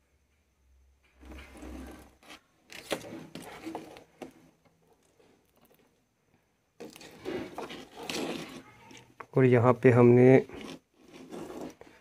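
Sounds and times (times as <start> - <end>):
fingers scraping wire: 1.2 - 4.4, 6.8 - 9.2, 10.2 - 12.0.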